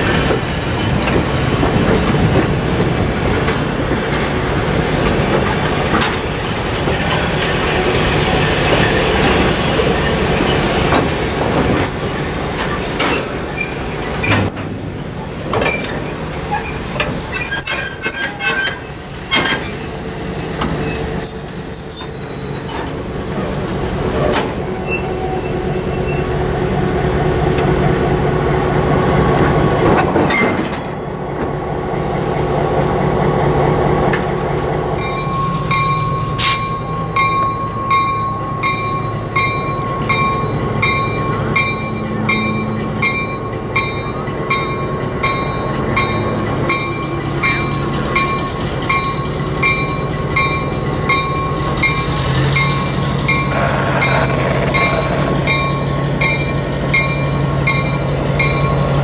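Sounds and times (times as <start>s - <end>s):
train cars rolling past: 0.0s - 59.0s
locomotive bell ringing: 35.0s - 59.0s.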